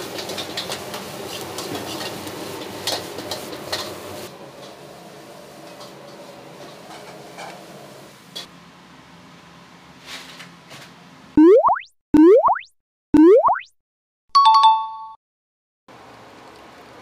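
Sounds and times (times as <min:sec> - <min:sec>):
rice sizzling in a wok: 0:00.0 - 0:10.5.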